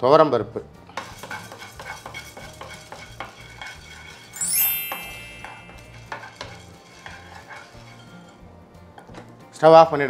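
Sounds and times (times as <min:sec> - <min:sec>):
spatula scraping a pan: 0:00.9 - 0:04.4, 0:05.4 - 0:09.3
rising electronic chime: 0:04.4 - 0:06.0.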